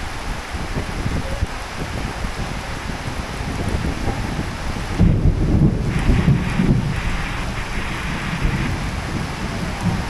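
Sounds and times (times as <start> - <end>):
heavy rain: 0.0 - 10.0
wind buffeting microphone: 0.0 - 10.0
uneven low rumble: 3.7 - 10.0.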